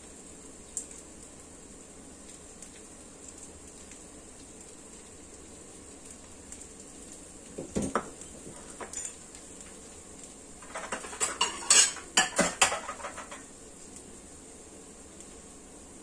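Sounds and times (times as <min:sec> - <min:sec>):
dishes clinking and knocking: 0:07.6 - 0:09.2, 0:10.6 - 0:13.4.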